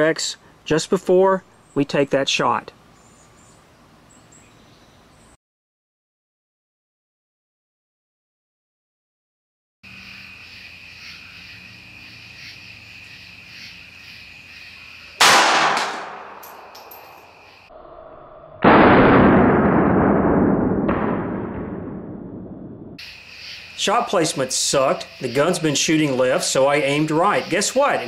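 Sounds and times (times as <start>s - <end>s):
pistol shot: 15.2s - 16.5s, 18.6s - 22.2s
long dull bangs: 15.2s - 16.6s, 18.6s - 22.9s.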